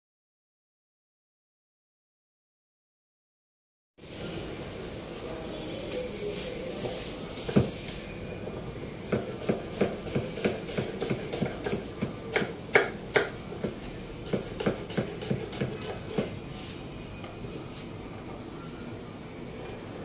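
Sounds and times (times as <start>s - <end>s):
knife chopping on wooden board: 9.1s - 16.3s.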